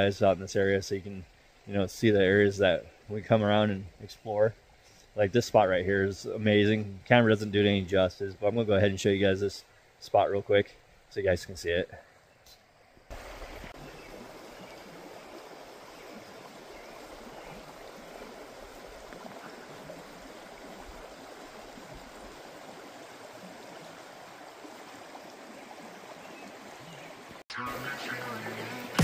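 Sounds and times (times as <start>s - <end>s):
creek water flowing: 0.0s - 29.0s.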